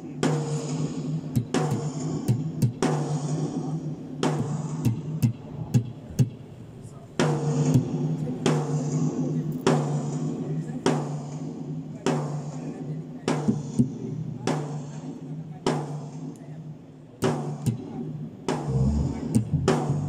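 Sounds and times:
drum kit playing: 18.7s - 20.0s
steady low note: 18.7s - 20.0s.

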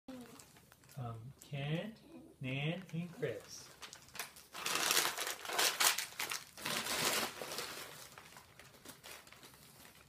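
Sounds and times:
wrapping paper crinkling and tearing: 2.9s - 10.0s.

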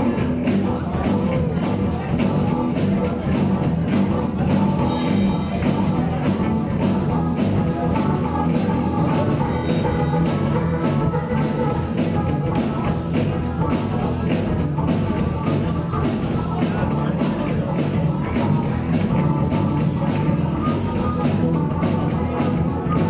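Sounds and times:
bass guitar: 0.0s - 23.0s
drum kit beat: 0.0s - 23.0s
electric guitars: 0.0s - 23.0s.

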